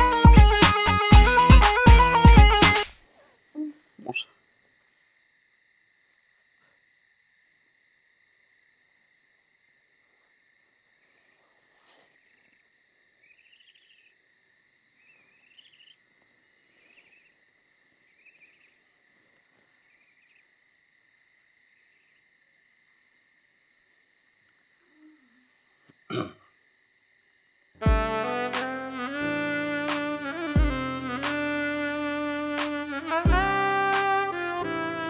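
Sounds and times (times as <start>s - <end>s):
crickets trilling: 3.0s - 27.8s
cricket chirps: 3.0s - 27.9s.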